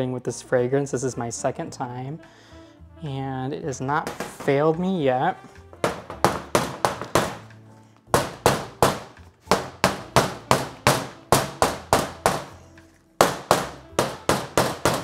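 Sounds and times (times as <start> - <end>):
wooden molds knocking on metal table: 4.0 - 4.7, 5.8 - 7.5, 8.1 - 12.5, 13.2 - 15.0.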